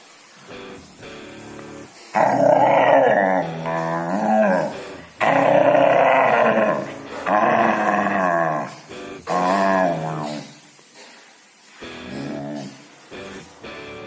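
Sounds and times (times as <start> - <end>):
dog grumbling and growl-howling: 2.1 - 10.6, 12.1 - 12.8.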